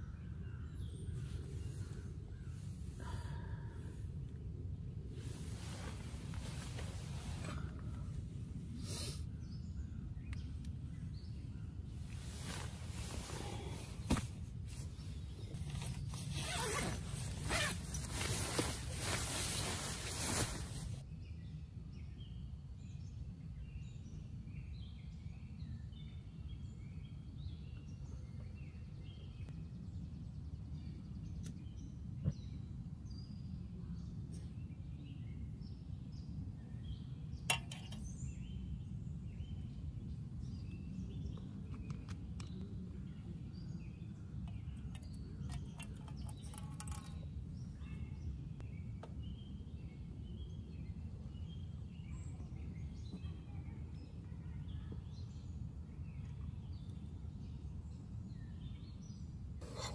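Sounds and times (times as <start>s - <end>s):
low outdoor rumble: 0.0s - 21.1s
birds chirping: 5.2s - 59.9s.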